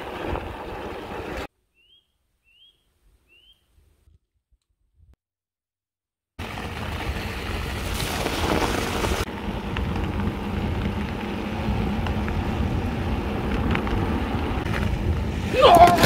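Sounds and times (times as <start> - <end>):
tyres rolling over packed snow: 0.0 - 1.5, 6.4 - 16.0
bike clicks: 8.0 - 15.2.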